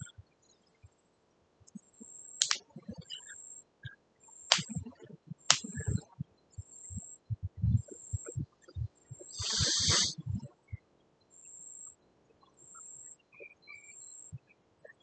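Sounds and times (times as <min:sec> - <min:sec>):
sharp clicks: 0:02.4 - 0:02.7, 0:04.5 - 0:06.1, 0:09.2 - 0:10.1.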